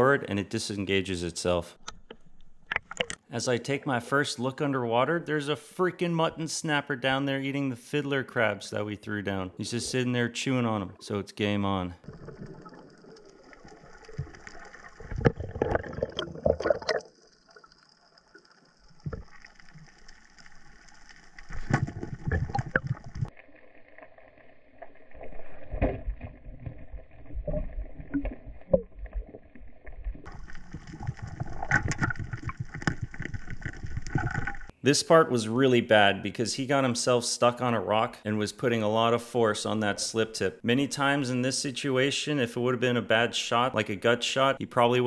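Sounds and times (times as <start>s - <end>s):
water rushing and gurgling: 12.0s - 23.6s, 24.8s - 34.7s.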